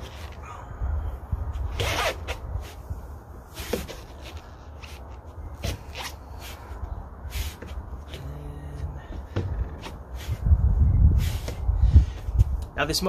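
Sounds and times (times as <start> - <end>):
sneakers scraping on wooden deck: 3.5 - 10.6.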